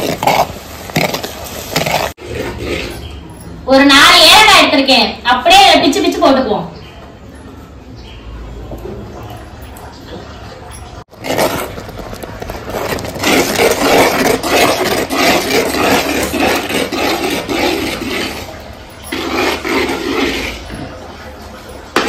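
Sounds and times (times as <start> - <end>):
metal ladle scraping clay pot: 0.0 - 3.6, 11.1 - 21.1.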